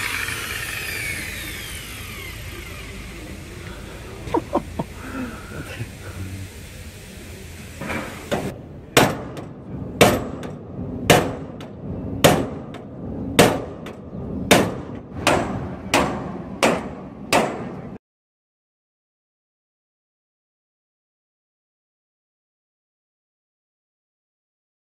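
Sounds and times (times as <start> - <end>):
hammer striking metal: 9.0 - 17.9.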